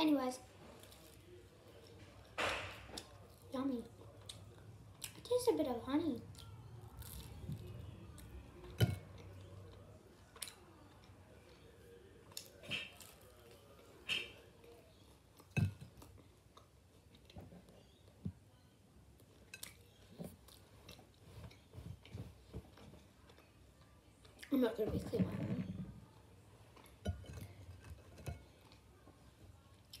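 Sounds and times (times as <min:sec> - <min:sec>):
child chewing food: 0:00.5 - 0:05.3, 0:06.2 - 0:24.6, 0:25.6 - 0:30.0.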